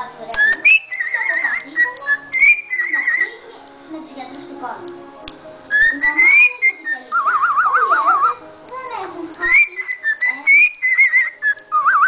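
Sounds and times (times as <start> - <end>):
cockatiel whistling: 0.4 - 3.3, 5.7 - 8.4, 9.4 - 12.0.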